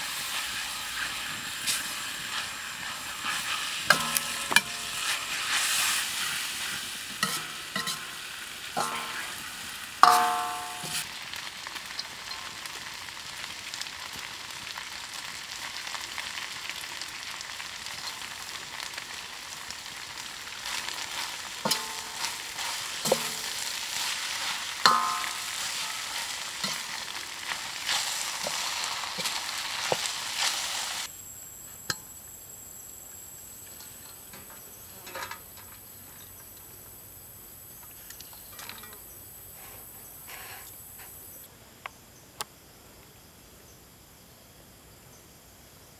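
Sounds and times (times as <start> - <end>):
food sizzling in a wok: 0.0 - 41.4
ladle clanking against wok: 7.2 - 8.2, 8.8 - 11.1, 21.6 - 30.1, 33.7 - 36.5
thin high steady tone: 10.0 - 11.0.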